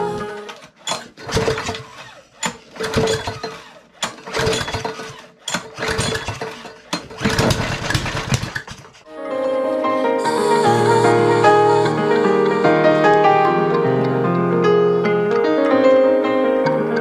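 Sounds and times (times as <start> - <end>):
small engine firing in bursts: 0.9 - 8.8.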